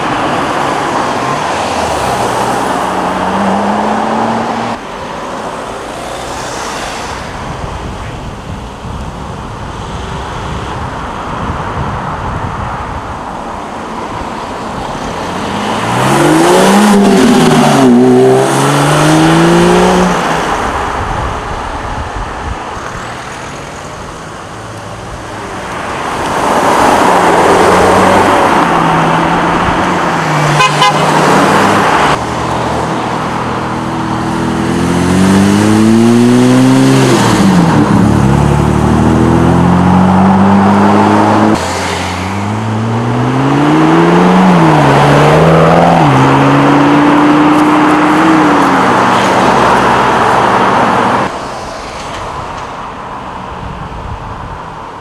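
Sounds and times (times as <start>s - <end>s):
sports car engines revving: 0.0s - 7.1s, 13.9s - 21.8s, 24.1s - 51.4s.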